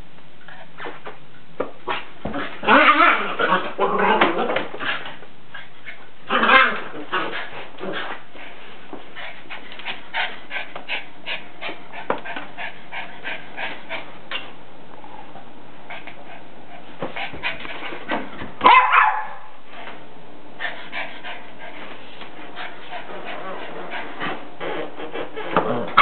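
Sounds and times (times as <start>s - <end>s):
dog barking: 18.6s - 19.5s.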